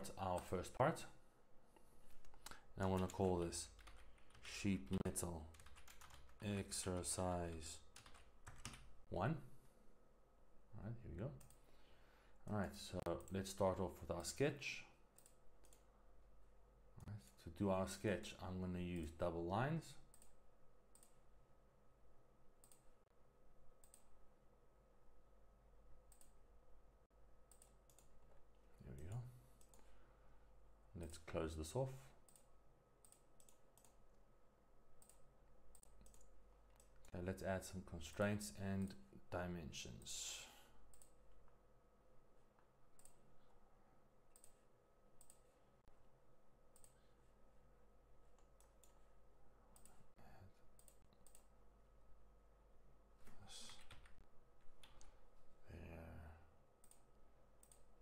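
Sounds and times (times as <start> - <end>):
faint steady hum: 0.0 - 58.0
computer mouse clicks: 11.4 - 11.7, 15.1 - 15.9, 20.1 - 21.2, 22.6 - 22.9, 23.8 - 24.1, 26.1 - 26.4, 27.5 - 28.2, 32.2 - 34.0, 35.0 - 37.2, 40.9 - 41.2, 42.6 - 43.2, 44.3 - 44.6, 45.2 - 45.5, 46.7 - 47.0, 49.8 - 50.1, 50.7 - 51.5, 54.8 - 55.2, 56.8 - 58.0.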